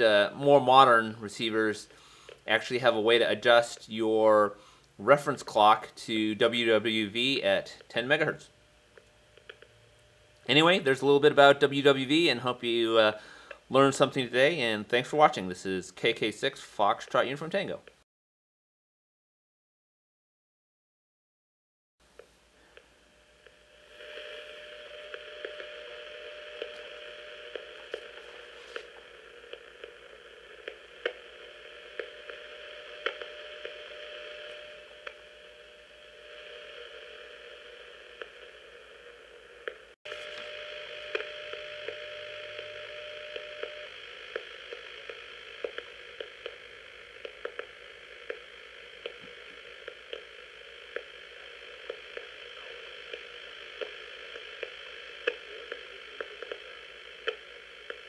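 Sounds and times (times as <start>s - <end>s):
static hiss: 0.0s - 18.0s, 22.0s - 58.0s
steady radio tone: 22.8s - 58.0s.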